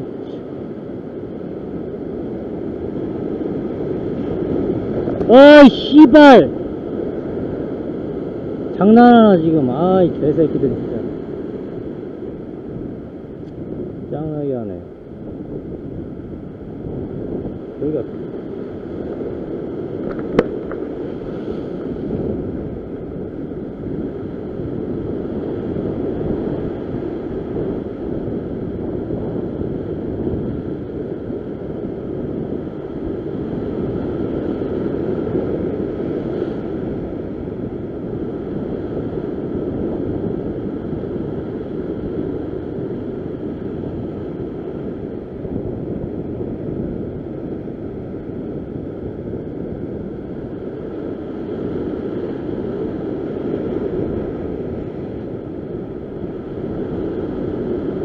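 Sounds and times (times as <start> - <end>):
wind on microphone: 0.0 - 58.0
surf breaking over rocks: 18.0 - 23.6.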